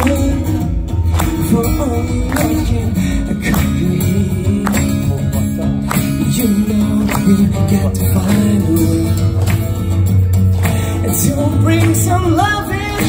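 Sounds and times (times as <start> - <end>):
acoustic guitars playing soul song: 0.0 - 13.0
percussive beat: 0.0 - 13.0.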